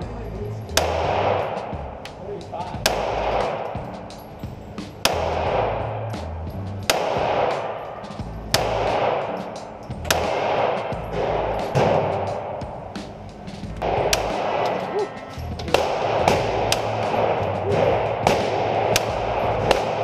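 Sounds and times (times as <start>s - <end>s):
pistol shots echoing indoors: 0.8s - 6.2s, 6.8s - 13.2s, 13.8s - 20.0s.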